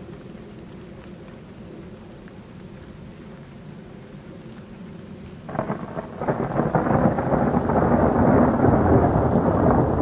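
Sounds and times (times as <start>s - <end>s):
thunder crackle and rumble: 5.4s - 10.0s.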